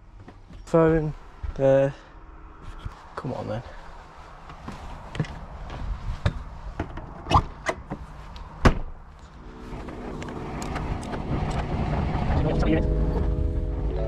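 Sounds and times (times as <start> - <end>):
steady multi-pitch hum: 9.3 - 14.0.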